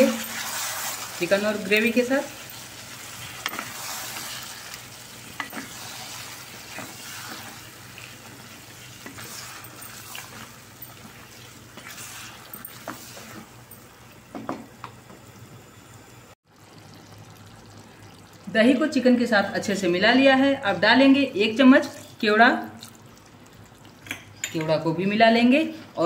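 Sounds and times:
food sizzling in a pot: 0.0s - 18.6s
spatula scraping a pot: 5.4s - 13.5s.

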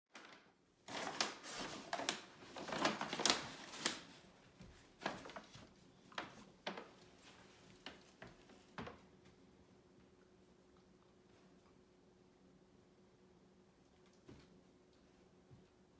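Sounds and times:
paper bag rustling and crinkling: 0.1s - 9.0s.

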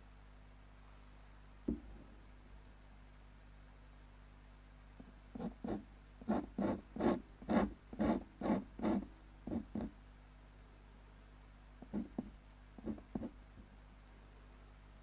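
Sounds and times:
pen nib scratching paper: 5.4s - 9.9s, 11.8s - 13.4s.

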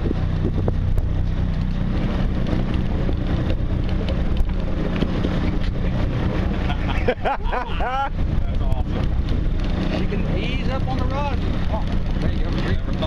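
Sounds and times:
boat engine idling: 0.0s - 13.0s
water noise: 0.0s - 13.0s
wind: 0.0s - 13.0s.

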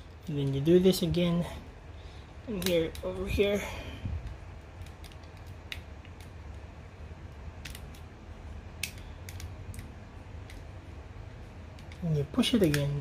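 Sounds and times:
toy figure joints clicking: 4.2s - 6.6s, 11.7s - 13.0s.

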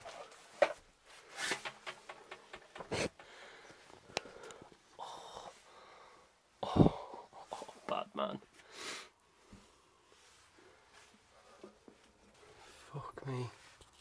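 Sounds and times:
close breathing: 2.8s - 7.9s, 8.5s - 13.0s.

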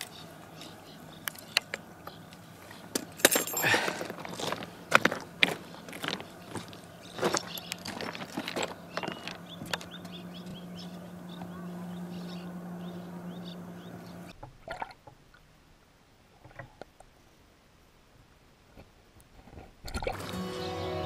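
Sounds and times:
steady low hum: 4.0s - 14.4s
bird chirping: 5.6s - 14.4s.

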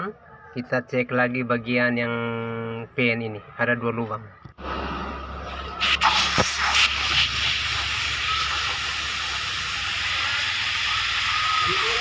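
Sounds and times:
compressed air hissing: 5.5s - 12.0s.

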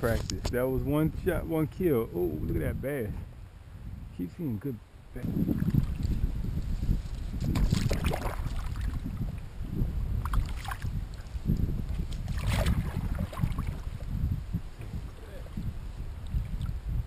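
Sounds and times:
wind rumble on microphone: 0.0s - 17.0s
paddle splashing in water: 7.4s - 9.1s, 10.2s - 11.3s, 12.0s - 14.1s.

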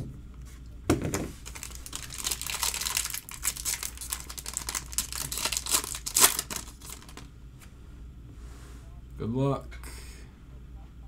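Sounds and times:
foil wrapper tearing and crinkling: 1.4s - 7.3s.

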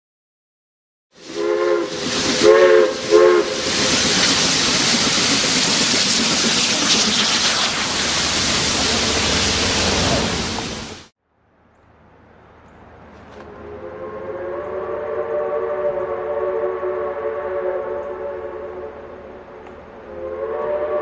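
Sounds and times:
steam locomotive whistle blasts: 1.2s - 4.0s, 13.5s - 19.3s, 20.0s - 21.0s
loud steam hiss: 1.2s - 11.1s.

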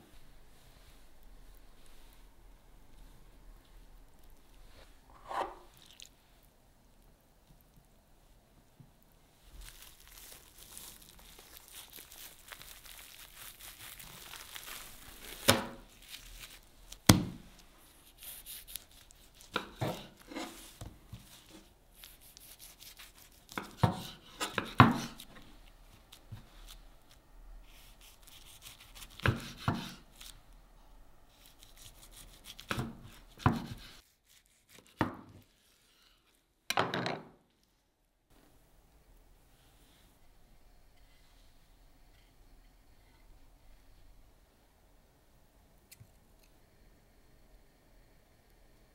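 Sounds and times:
soft crinkling of handling: 0.0s - 29.2s
knife chopping on cutting board: 19.5s - 20.6s, 23.5s - 25.2s, 29.1s - 30.0s, 32.6s - 34.0s.

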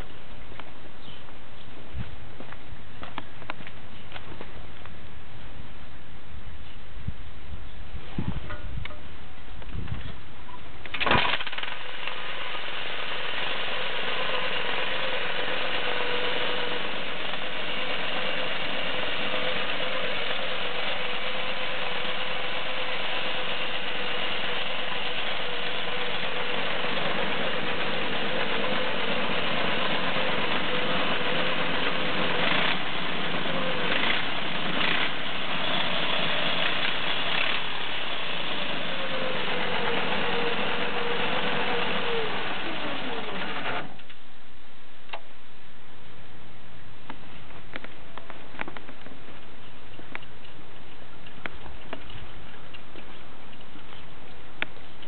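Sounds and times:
small go-kart engine running: 10.9s - 44.1s.

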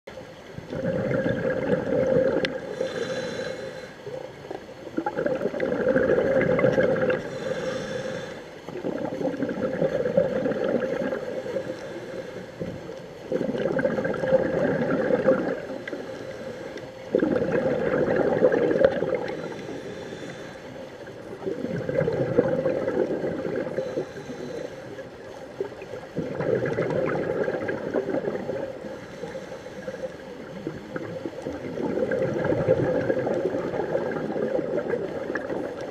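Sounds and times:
exhaled bubbles gurgling underwater: 0.1s - 35.9s
regulator hiss: 2.2s - 4.3s, 6.9s - 8.6s, 15.6s - 17.2s, 19.1s - 21.5s, 28.8s - 30.5s.

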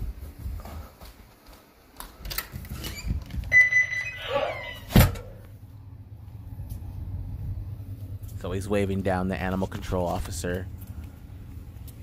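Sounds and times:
low steady hum: 2.4s - 12.0s
high electronic beep: 3.5s - 4.8s.

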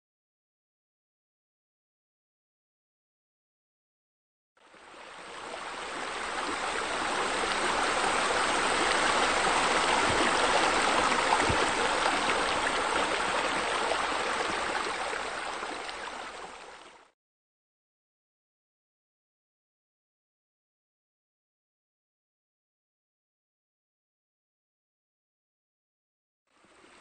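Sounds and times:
water falling into a pool: 4.8s - 17.1s.

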